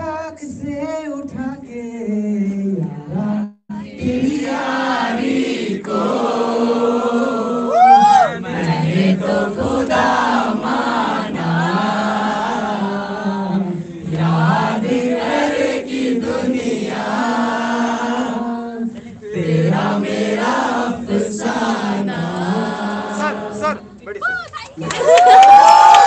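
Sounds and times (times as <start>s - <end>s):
crowd singing: 2.5s - 24.1s.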